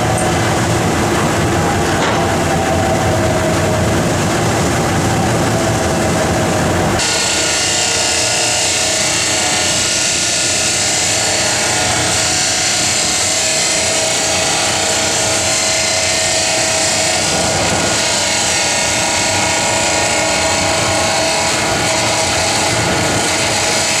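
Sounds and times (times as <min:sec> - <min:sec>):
abrasive wheel grinding metal: 0:00.0 - 0:24.0
cut-off saw motor hum: 0:07.0 - 0:24.0.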